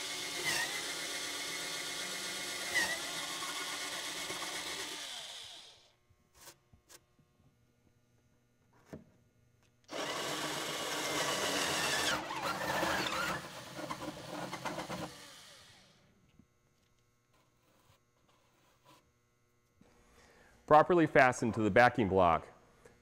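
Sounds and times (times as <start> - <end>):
cordless drill with hole saw cutting: 0.0 - 5.9, 9.9 - 16.0.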